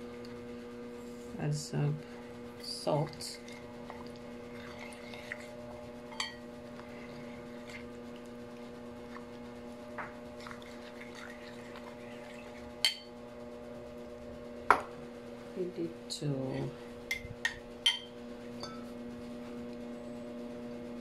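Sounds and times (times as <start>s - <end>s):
low electrical hum: 0.0s - 21.0s
spoon stirring batter in bowl: 2.6s - 13.2s
spoon clinking against bowl: 17.1s - 18.8s.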